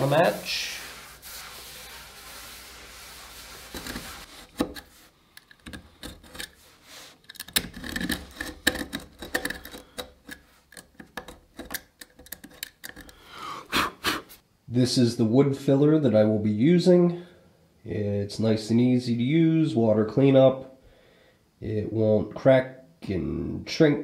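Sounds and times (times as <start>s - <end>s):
cloth rubbing on wooden tabletop: 0.0s - 5.1s.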